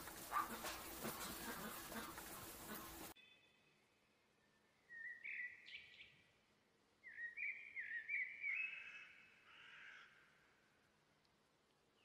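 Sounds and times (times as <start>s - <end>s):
bird chattering calls: 0.0s - 3.1s.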